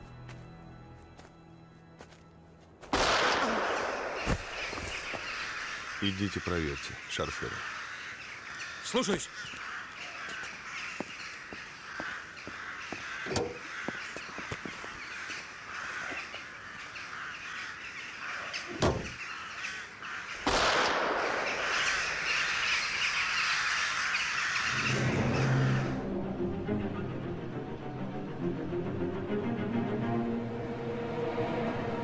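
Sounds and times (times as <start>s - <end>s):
orchestral music with low strings: 0.0s - 2.9s, 25.0s - 32.0s
crows cawing: 3.0s - 26.2s.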